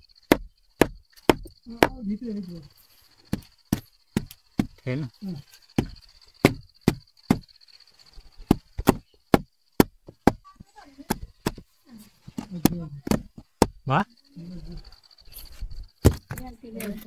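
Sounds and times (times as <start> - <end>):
chopping strikes on wood: 0.3 - 2.0, 5.8 - 7.4, 8.4 - 10.4, 11.0 - 11.6, 12.4 - 13.8, 16.0 - 16.4.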